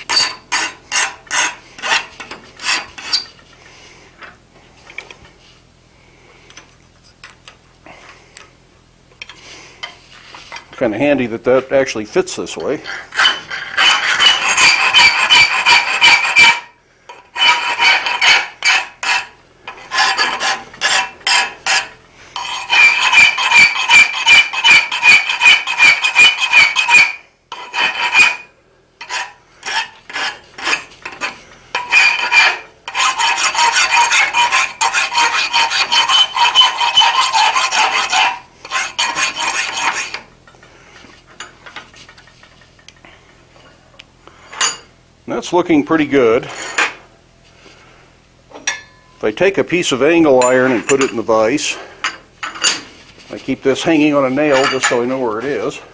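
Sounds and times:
file rasping on iron: 0.1s - 3.3s, 12.8s - 40.3s.

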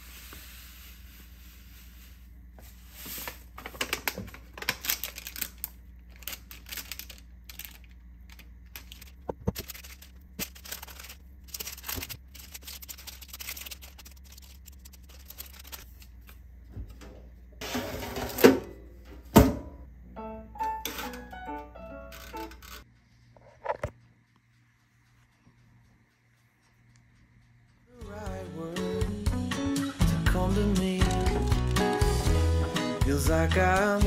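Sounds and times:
utensil clatter: 3.1s - 18.7s.

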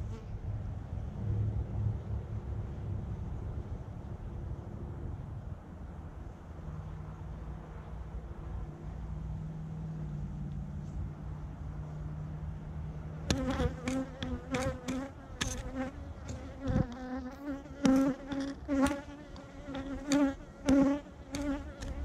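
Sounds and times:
bees buzzing: 13.2s - 22.0s
sharp clicks and taps: 13.3s - 17.1s.

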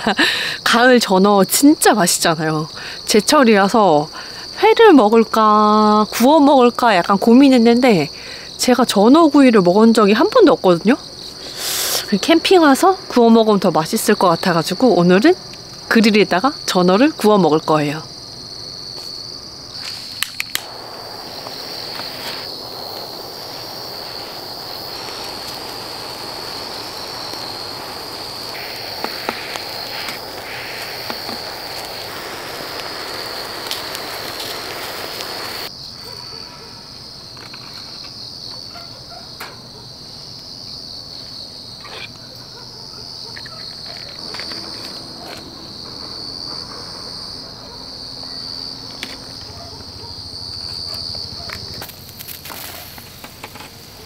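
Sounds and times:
crickets chirping: 0.0s - 54.0s
gas torch hissing: 11.3s - 12.3s, 19.7s - 35.7s, 51.8s - 54.0s.

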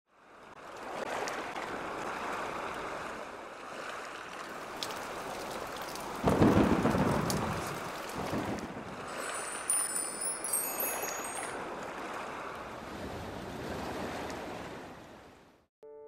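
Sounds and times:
rain hissing: 4.4s - 11.6s
low rumble of thunder: 6.0s - 9.2s.

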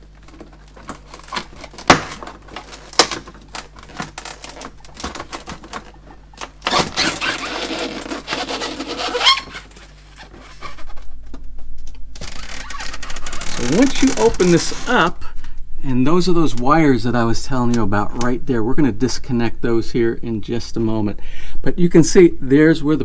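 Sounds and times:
plastic panel scraping and creaking: 0.0s - 15.1s.

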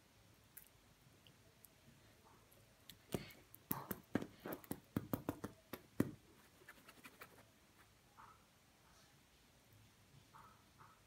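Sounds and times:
kitten claws scratching on sheet: 6.4s - 7.5s.

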